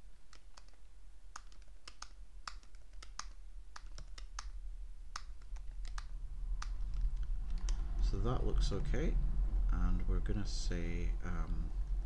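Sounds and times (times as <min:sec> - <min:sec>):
low steady hum: 0:00.0 - 0:12.0
keyboard keys tapping: 0:00.3 - 0:07.8.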